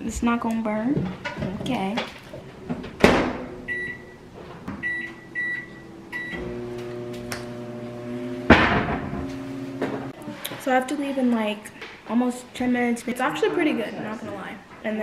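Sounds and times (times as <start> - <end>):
microwave oven humming: 3.6 - 10.1
keypad beeps: 3.7 - 4.1, 4.8 - 6.4.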